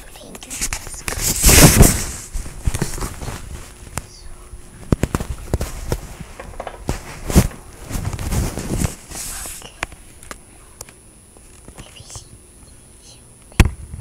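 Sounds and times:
phone handling knocks and rustling: 4.8 - 8.9.

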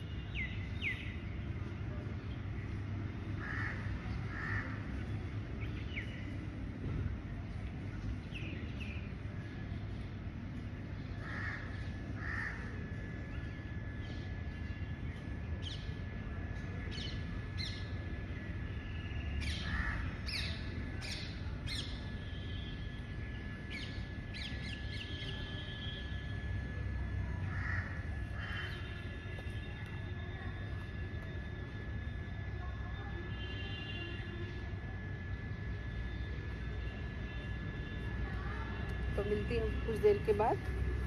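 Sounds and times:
crows cawing: 3.4 - 5.0, 11.2 - 12.8, 19.6 - 20.2, 27.5 - 29.0.

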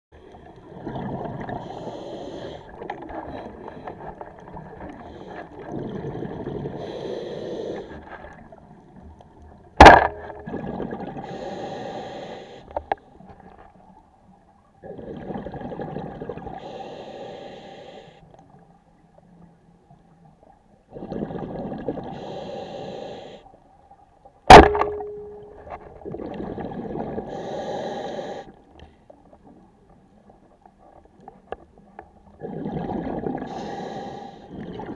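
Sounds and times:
diver breathing underwater: 0.6 - 4.2, 4.9 - 8.1, 9.8 - 13.0, 16.5 - 18.3, 21.9 - 23.5, 26.4 - 28.7, 32.6 - 34.9
speargun firing crack: 9.8 - 10.5, 24.5 - 25.3
short ringing tone: 24.5 - 25.7.

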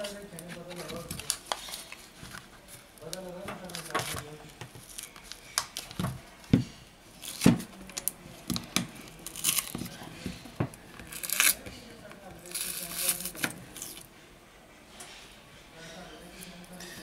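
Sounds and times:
adhesive tearing: 7.2 - 10.0, 11.1 - 11.6
plastic sheet crinkling: 12.4 - 14.1.

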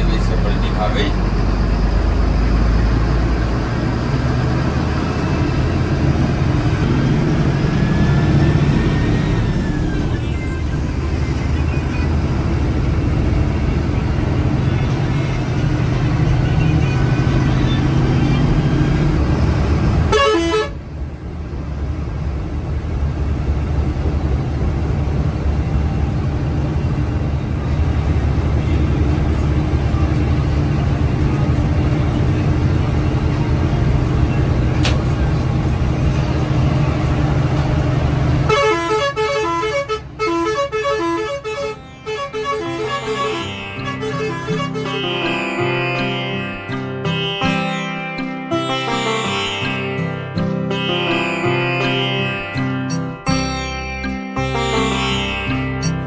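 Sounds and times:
bus engine and road rumble: 0.0 - 47.3
vehicle horns honking: 20.0 - 20.8, 38.3 - 45.5.

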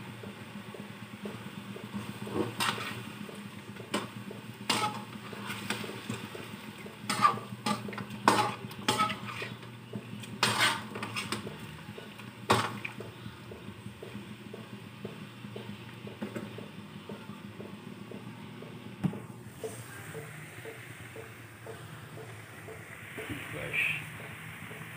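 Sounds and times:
utensil scraping frying pan: 2.2 - 3.2, 3.9 - 12.9.

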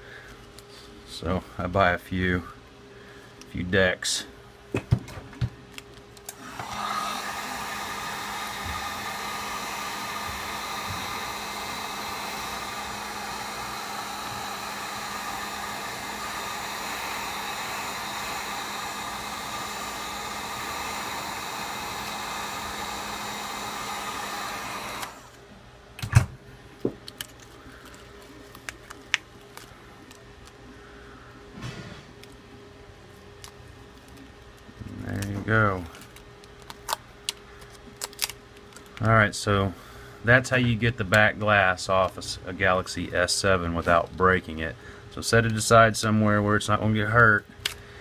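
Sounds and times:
heat gun running: 6.2 - 25.5.

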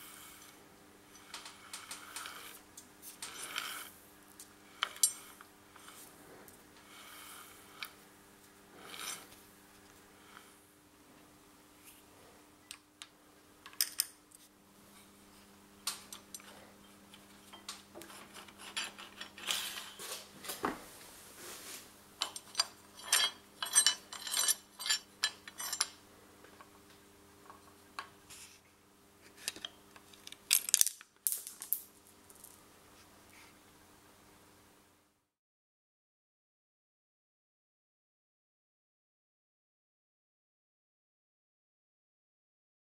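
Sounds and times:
faint steady hum: 0.0 - 35.3
small parts clicking and clinking: 1.2 - 3.7, 4.4 - 6.0, 12.7 - 14.2, 22.2 - 26.7, 29.4 - 32.6.

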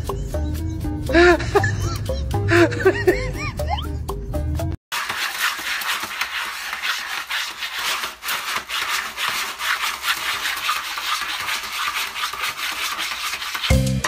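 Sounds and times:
cat scratching in litter box: 4.9 - 13.8.

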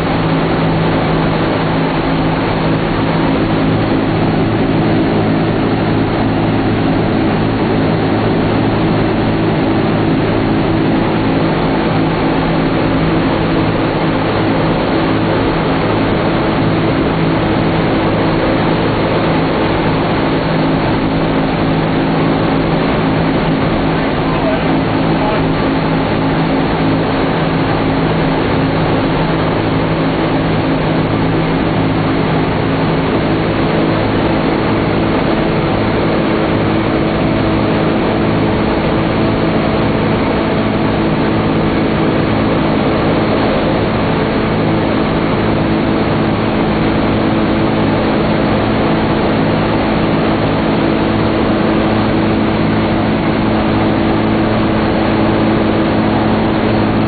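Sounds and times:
aircraft radial engines droning: 0.0 - 57.0.

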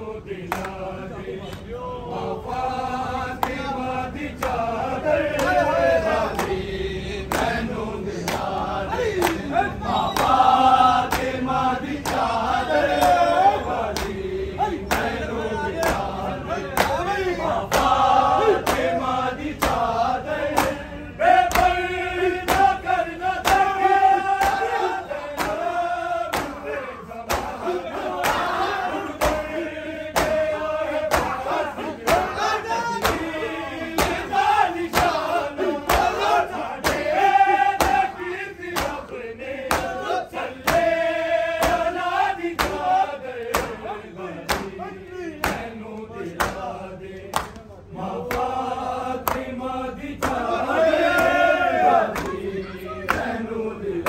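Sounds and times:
men chanting in unison: 0.0 - 54.0
chest-beating slaps: 22.4 - 22.8, 23.4 - 23.8, 24.4 - 25.7, 26.3 - 29.6, 30.2 - 30.5, 31.1 - 31.4, 32.0 - 33.3, 34.0 - 37.1, 37.8 - 38.2, 38.8 - 40.9, 41.6 - 42.0, 42.6 - 44.8, 45.4 - 48.5, 49.2 - 49.5, 52.1 - 52.4.

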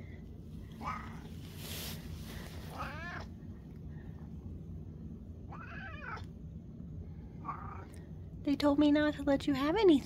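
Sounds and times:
cat meowing: 0.8 - 1.3, 2.7 - 3.3, 5.5 - 6.3, 7.4 - 7.9.

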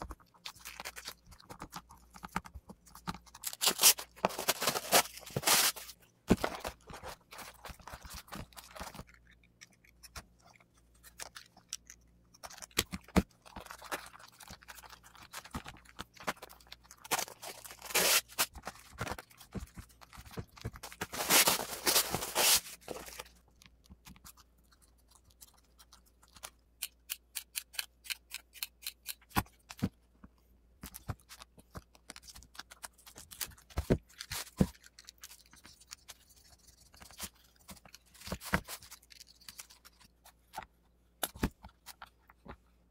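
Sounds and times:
sharp clicks and snips of cutting: 26.8 - 29.4.

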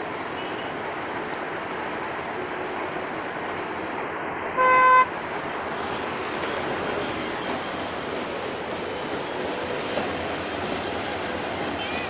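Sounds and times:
diesel train passing: 0.0 - 12.0
road traffic rumble: 0.0 - 12.0
horn beep: 4.6 - 5.1.

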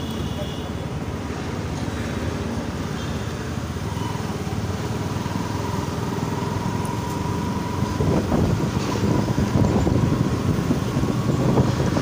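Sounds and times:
wind buffeting microphone: 7.8 - 12.0.

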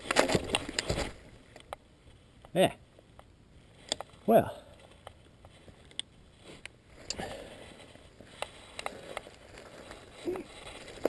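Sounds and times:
bike clicking and rattling: 0.0 - 1.8, 6.9 - 11.0
bike tyres on dirt: 0.0 - 2.8, 3.6 - 11.0.

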